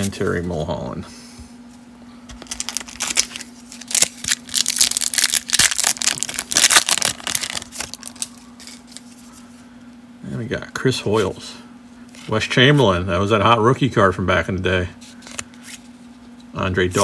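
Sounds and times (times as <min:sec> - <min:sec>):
faint steady hum: 0:00.0 - 0:17.0
foil wrapper tearing and crinkling: 0:02.4 - 0:09.1.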